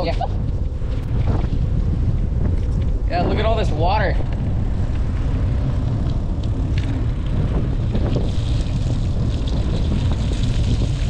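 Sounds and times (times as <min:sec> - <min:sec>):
wind buffeting microphone: 0:00.0 - 0:11.0
tyres hissing on wet asphalt: 0:07.7 - 0:11.0.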